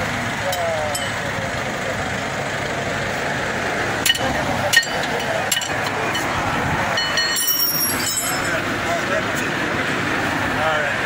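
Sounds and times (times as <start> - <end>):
steady background noise: 0.0 - 11.0
metal tools clinking on brake hub: 0.5 - 1.3, 4.0 - 8.6.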